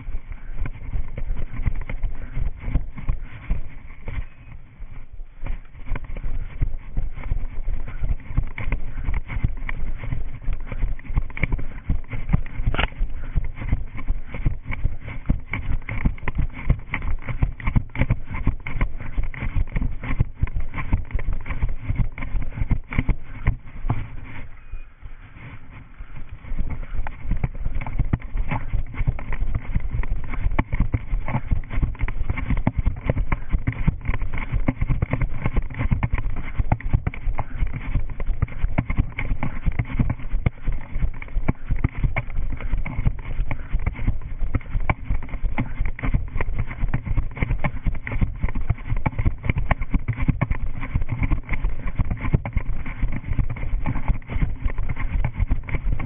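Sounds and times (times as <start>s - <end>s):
running footsteps: 0.0s - 56.0s.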